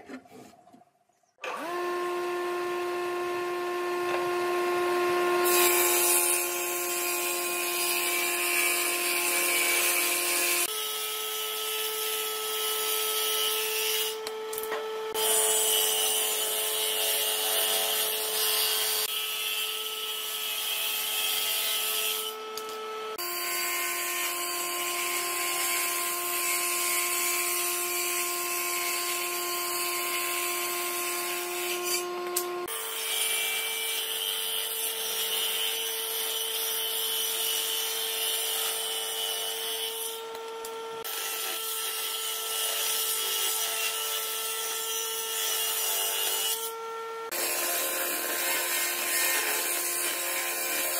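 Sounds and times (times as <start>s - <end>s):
table saw motor whine: 1.4s - 8.3s, 10.0s - 27.9s, 29.1s - 32.9s, 46.5s - 49.7s
saw blade cutting wood: 1.4s - 50.9s.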